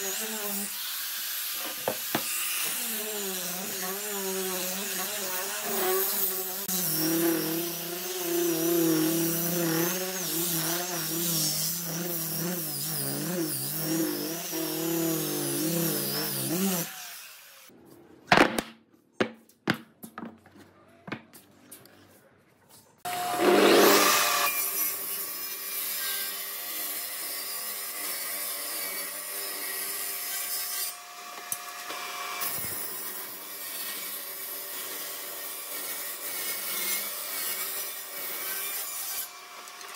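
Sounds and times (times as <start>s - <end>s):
table saw ripping wood: 0.0s - 17.4s, 23.1s - 25.0s
orbital sander running: 1.8s - 16.9s.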